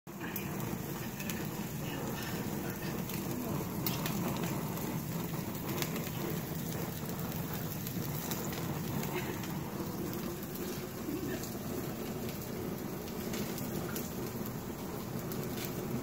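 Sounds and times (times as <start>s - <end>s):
steaks sizzling on a grill: 0.1s - 16.0s.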